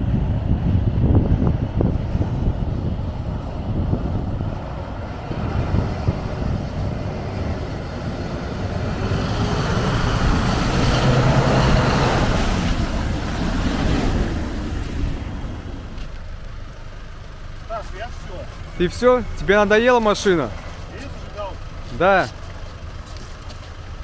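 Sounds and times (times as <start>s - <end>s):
off-road engine revving under load: 0.1s - 16.0s.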